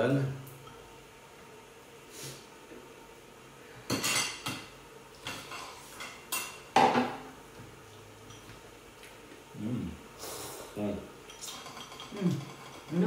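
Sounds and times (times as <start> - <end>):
ladle and chopsticks clinking: 11.3 - 13.0.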